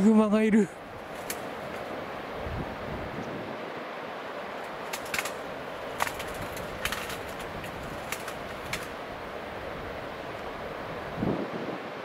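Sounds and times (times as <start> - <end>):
steady rushing outdoor noise: 0.0 - 12.0
sharp clicks: 6.0 - 8.9.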